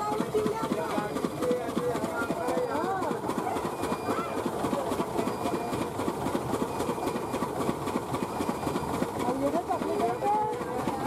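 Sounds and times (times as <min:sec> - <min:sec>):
machine clattering: 0:00.0 - 0:11.0.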